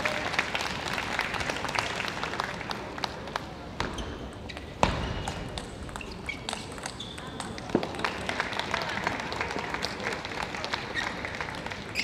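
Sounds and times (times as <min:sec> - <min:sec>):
table tennis ball bouncing: 0:03.8 - 0:08.0.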